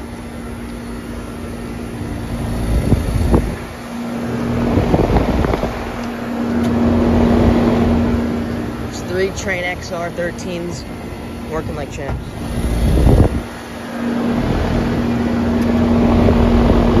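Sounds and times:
heat pump fans and compressors humming: 0.0s - 17.0s
wind buffeting microphone: 1.9s - 9.4s, 12.1s - 17.0s.

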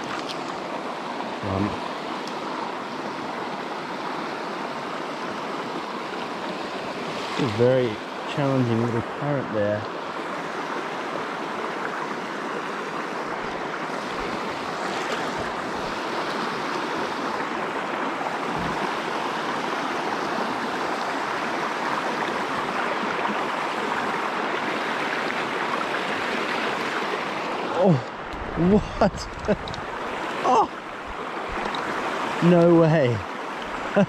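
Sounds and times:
river flowing over rocks: 0.0s - 34.0s.

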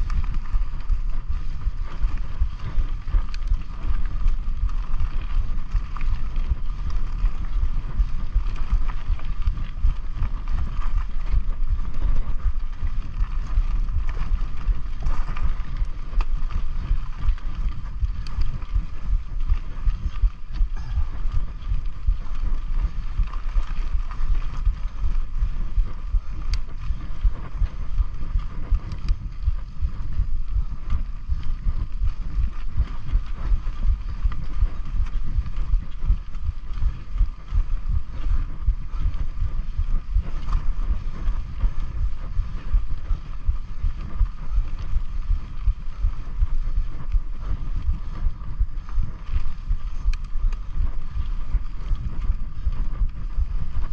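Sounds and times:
bike rattles and clicks: 0.0s - 53.9s
bike tyres on dirt: 0.0s - 53.9s
steady thin hum: 0.0s - 53.9s
wind buffeting microphone: 0.0s - 53.9s.

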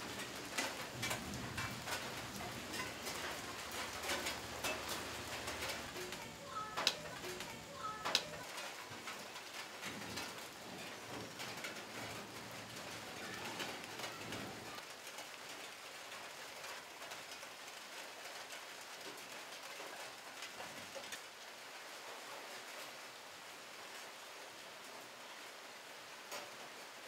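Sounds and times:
light rain pattering on leaves: 0.0s - 27.0s.

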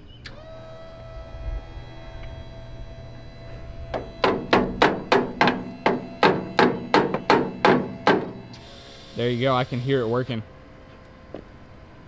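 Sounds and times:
electric fuel pump clicking: 0.2s - 11.5s.

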